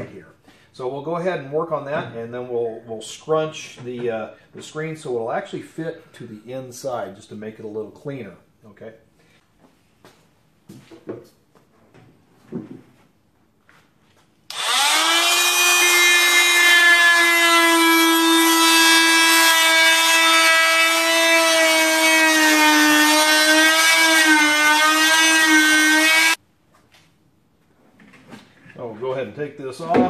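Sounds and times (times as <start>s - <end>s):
multi-tool cutting plastic: 14.5s - 26.4s.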